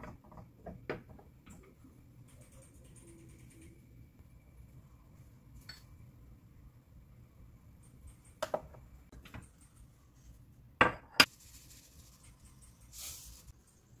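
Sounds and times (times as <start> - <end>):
shaker sprinkling seeds: 11.3 - 13.6.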